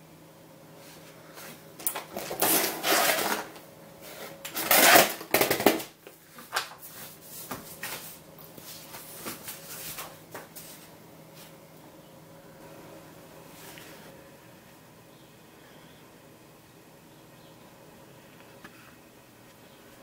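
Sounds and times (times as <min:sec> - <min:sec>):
paper sheet rustling: 0:02.0 - 0:03.6.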